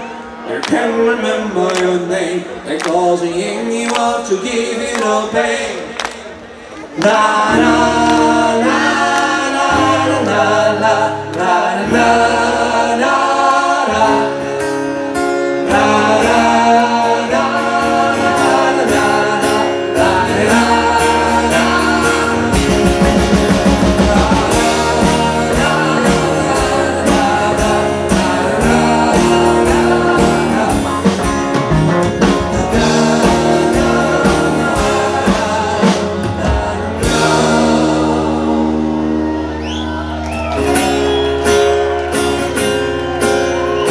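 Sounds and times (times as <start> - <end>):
person singing: 6.9 - 39.6
live rock band playing: 7.5 - 43.9.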